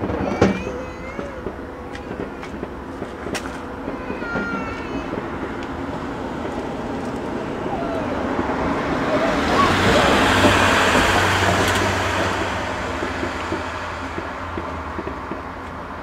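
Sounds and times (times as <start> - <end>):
vehicle passing by: 6.1 - 16.0.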